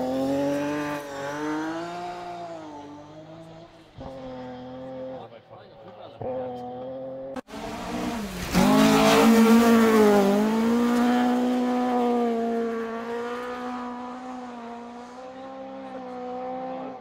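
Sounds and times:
rally car engine at high revs: 0.0 - 17.0.

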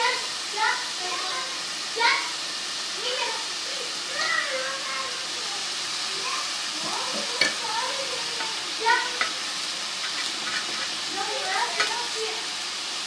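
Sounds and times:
batter sizzling on griddle: 0.0 - 13.0
spatula scraping griddle: 6.8 - 12.2.

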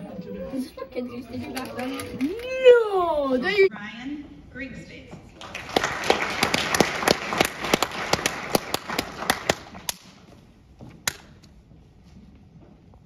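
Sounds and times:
audience applauding: 1.5 - 2.8, 5.4 - 10.1.

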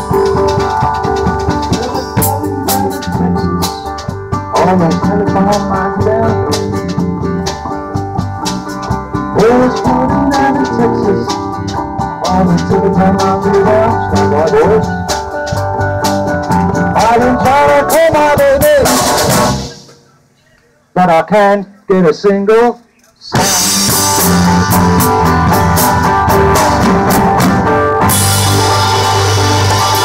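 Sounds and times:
electric bass: 0.0 - 19.8, 23.4 - 30.0
drum kit with crash cymbals: 0.0 - 20.1, 23.3 - 30.0
man singing: 1.5 - 7.4, 9.3 - 11.4, 12.2 - 15.0, 16.9 - 19.1.

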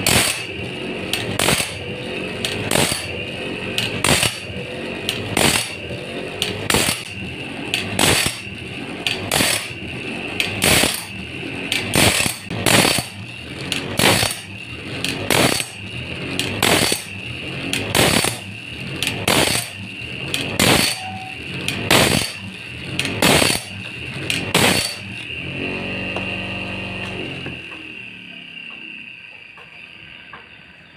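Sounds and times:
rasping grind on saw teeth: 0.0 - 3.1, 3.8 - 4.5, 5.1 - 7.2, 8.0 - 8.5, 9.1 - 9.8, 10.5 - 11.1, 11.8 - 13.2, 14.0 - 15.8, 16.6 - 17.1, 17.9 - 18.4, 20.4 - 22.4, 24.3 - 25.0
low motor hum: 0.0 - 30.6
grinding wheel whining: 0.0 - 30.9.

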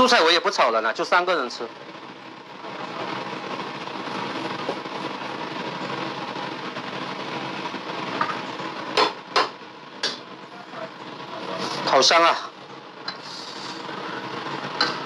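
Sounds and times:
stew cooking rushing noise: 1.7 - 15.0
sharp knocks: 9.0 - 10.2.

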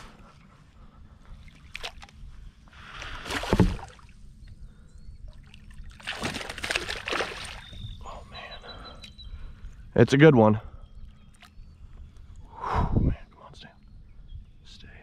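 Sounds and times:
landing net pushed into water: 3.2 - 3.9
fish splashing in water: 5.9 - 7.8.

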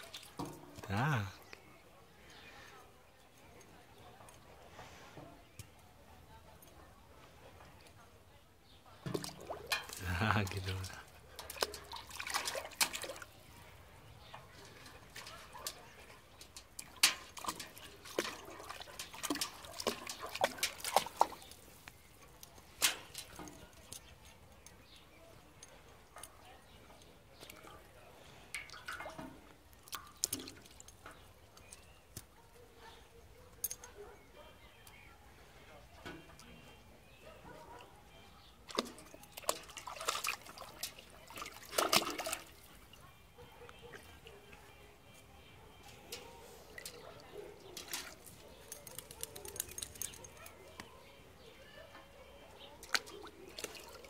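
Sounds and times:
dog splashing and lapping water: 0.0 - 0.9, 9.0 - 24.0, 28.6 - 31.0, 38.4 - 44.5, 45.7 - 50.9, 52.6 - 54.0
water dripping: 0.0 - 1.7, 9.0 - 24.9, 26.9 - 32.3, 38.7 - 43.0, 46.1 - 51.0, 52.8 - 54.0
dog slurping water: 9.1 - 13.3, 14.5 - 21.7, 38.7 - 42.7.

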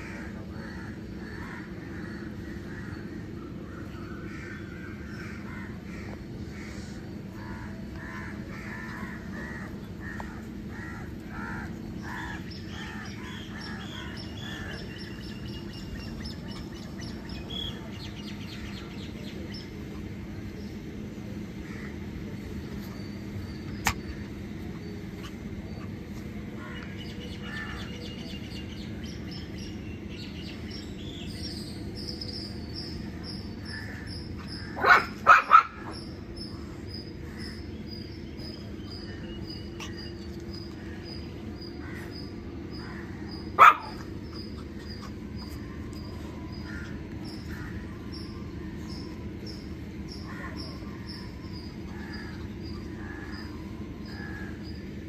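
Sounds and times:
bird chirping: 11.9 - 19.8
dog barking: 34.8 - 36.0, 43.6 - 44.0.

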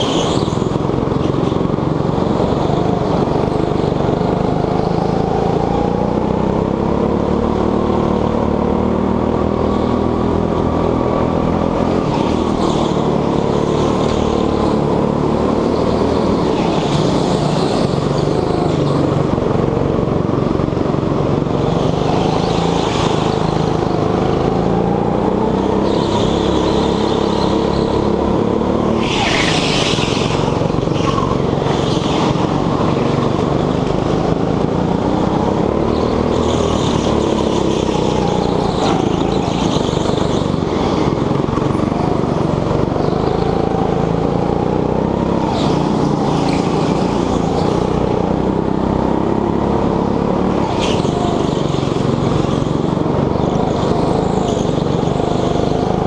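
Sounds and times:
go-kart engine running hard: 0.0 - 56.0
other karts' engines: 0.0 - 56.0
tyre squeal: 25.7 - 28.2, 28.8 - 33.7.

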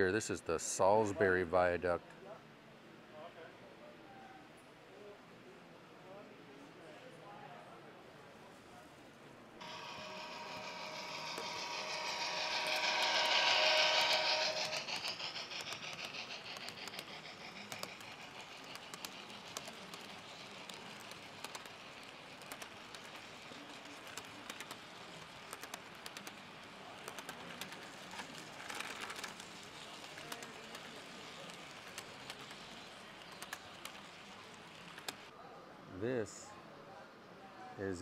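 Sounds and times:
model train rolling past: 9.6 - 35.3
model wheels clicking over track: 9.6 - 35.3.

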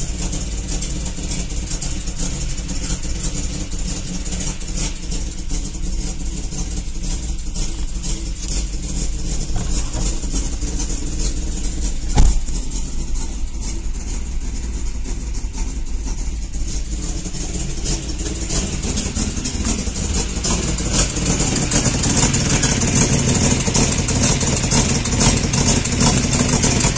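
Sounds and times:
car engine idling roughly: 0.0 - 26.9
exhaust leak ticking: 0.0 - 26.9
sharp knock: 12.1 - 12.6.

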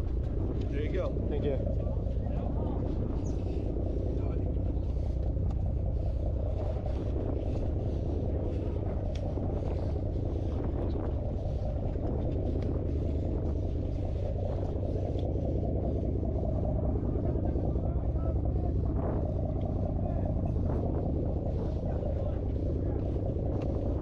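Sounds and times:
boat engines droning: 0.0 - 24.0
faint ticks: 9.1 - 9.3.

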